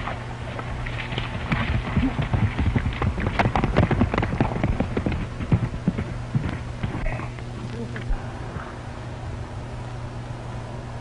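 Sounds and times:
horse hoofbeats: 0:00.0 - 0:07.2
old film soundtrack hum and hiss: 0:00.0 - 0:11.0.

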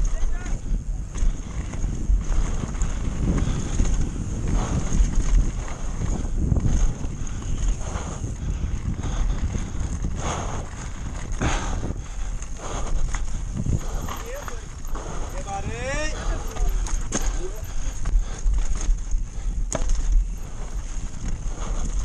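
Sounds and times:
tyres rattling on dirt and stones: 0:00.0 - 0:22.0
wind buffeting microphone: 0:00.0 - 0:22.0
bike knocking over bumps: 0:16.5 - 0:22.0.

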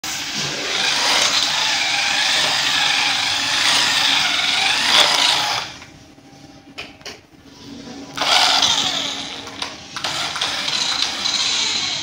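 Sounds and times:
toy car motor whirring: 0:00.6 - 0:05.8, 0:08.2 - 0:12.0.

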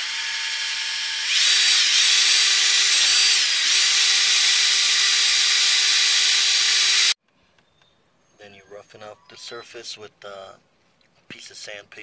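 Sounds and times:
drill spinning wire brush on metal: 0:00.0 - 0:07.2.

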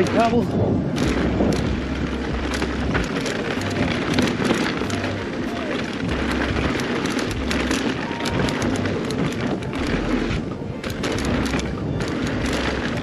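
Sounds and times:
bike tyres on loose gravel: 0:00.0 - 0:13.0.

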